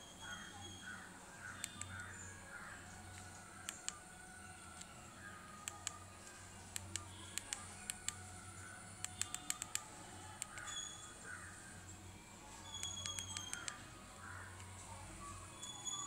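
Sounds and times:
phone keypad clicks: 0:01.6 - 0:02.1, 0:03.1 - 0:04.0, 0:06.7 - 0:08.2, 0:09.0 - 0:10.8, 0:12.7 - 0:13.8.

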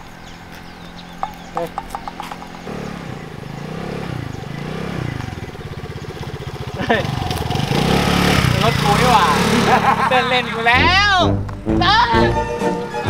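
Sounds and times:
motor scooter engine revving: 0:00.2 - 0:11.1
rapid sharp chirps: 0:00.8 - 0:06.7.

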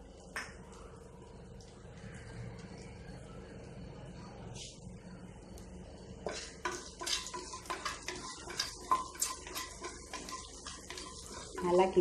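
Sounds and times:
spices sizzling in hot oil: 0:06.2 - 0:12.0
spatula scraping pot: 0:06.3 - 0:12.0.

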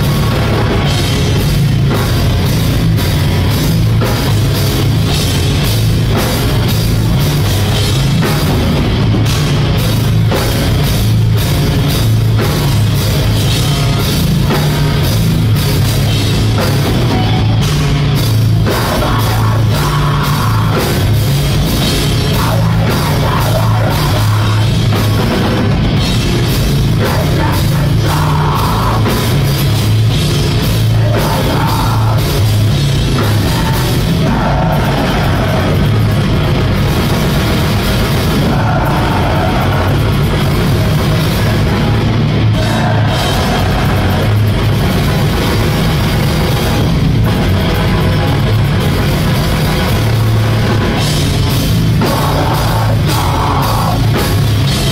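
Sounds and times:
drum kit beat: 0:00.0 - 0:54.9
electric guitar: 0:00.0 - 0:54.9.

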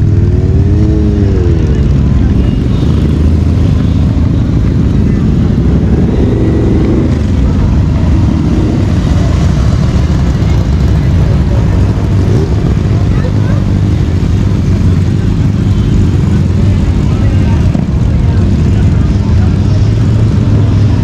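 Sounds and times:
motorcycle engines rumbling: 0:00.0 - 0:21.0.

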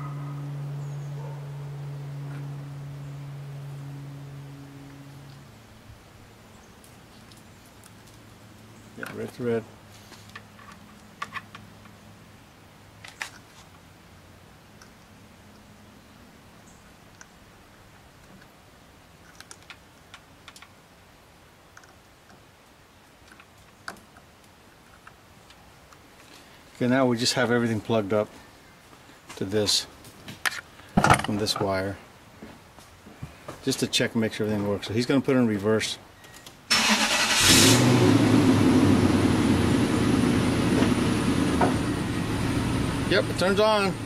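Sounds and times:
car engine starting and idling: 0:36.7 - 0:44.0.

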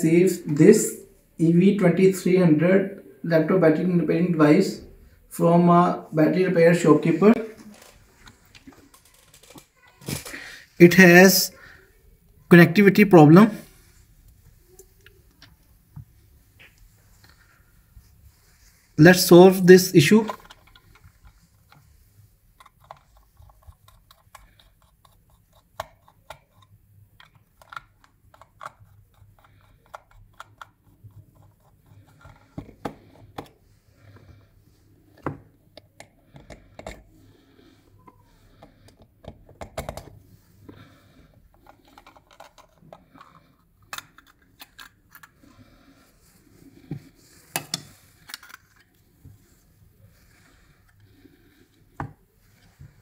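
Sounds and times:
plastic case clicks and scrapes: 0:41.6 - 0:45.3.

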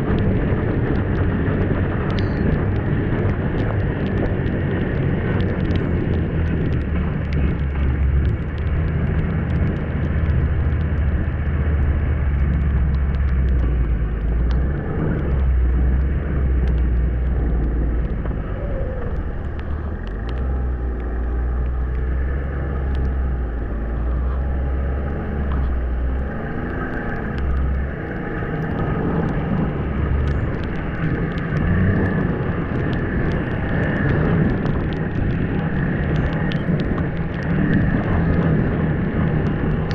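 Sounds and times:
sharp clicks: 0:02.0 - 0:38.5.

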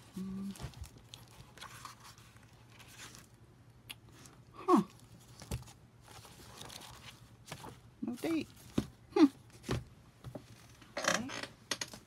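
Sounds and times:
book pages turning: 0:00.4 - 0:03.4, 0:05.0 - 0:09.0.

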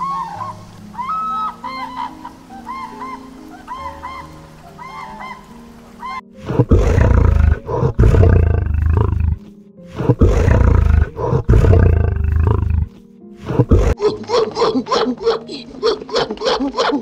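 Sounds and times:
background music: 0:00.0 - 0:17.0
lion roaring: 0:06.4 - 0:14.1.

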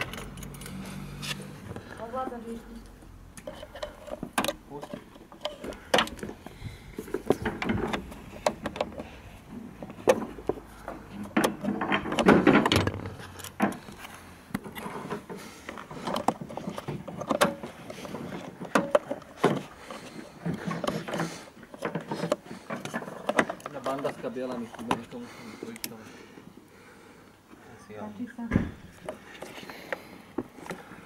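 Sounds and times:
plastic clicks and knocks: 0:07.1 - 0:09.0.

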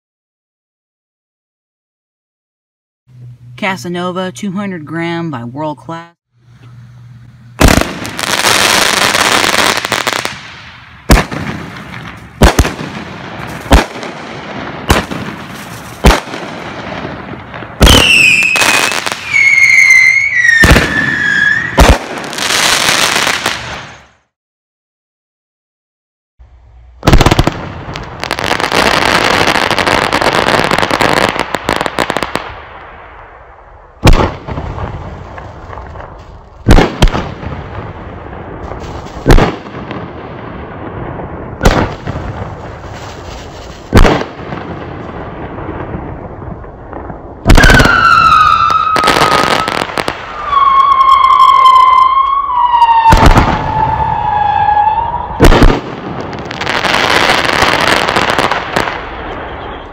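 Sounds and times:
fireworks crackling: 0:07.2 - 0:24.2, 0:27.0 - 0:33.0, 0:34.0 - 0:59.9
fireworks bangs: 0:07.6 - 0:24.2, 0:27.0 - 0:33.1, 0:34.0 - 0:59.9
fireworks sharp shots: 0:07.6 - 0:24.2, 0:27.0 - 0:59.9
fireworks whistles falling in pitch: 0:17.8 - 0:23.2, 0:47.5 - 0:55.7, 0:59.1 - 0:59.9.

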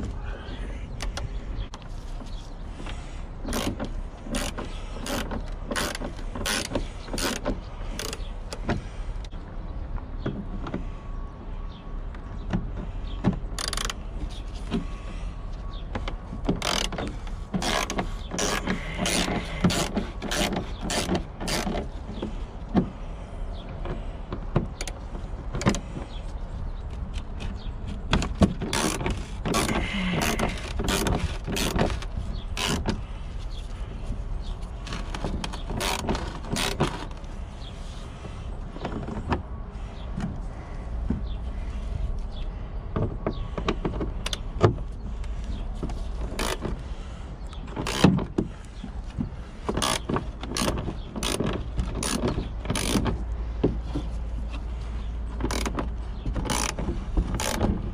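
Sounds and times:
ratchet clicking: 0:03.5 - 0:08.6, 0:16.6 - 0:21.9, 0:28.6 - 0:32.9, 0:49.8 - 0:53.2, 0:55.4 - 0:57.7.

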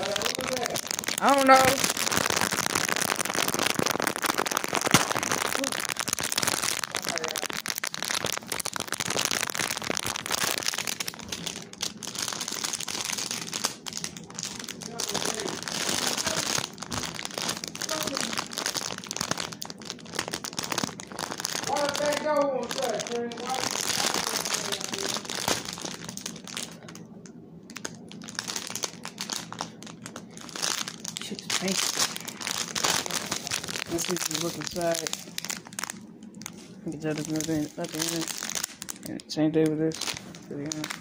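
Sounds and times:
plastic bag crinkling: 0:00.0 - 0:41.0.

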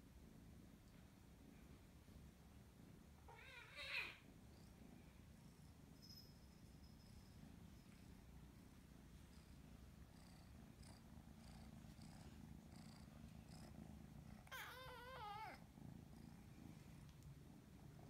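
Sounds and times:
cat meowing: 0:03.3 - 0:04.2, 0:14.5 - 0:15.6
cat purring: 0:07.1 - 0:18.0.

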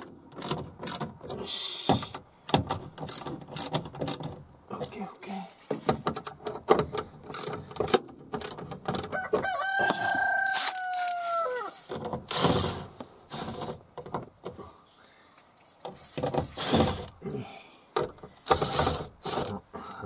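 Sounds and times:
hand ratchet clicking: 0:00.0 - 0:01.4, 0:02.0 - 0:04.3, 0:06.1 - 0:09.1
handling knocks and rustles: 0:00.0 - 0:14.7, 0:15.4 - 0:17.2.

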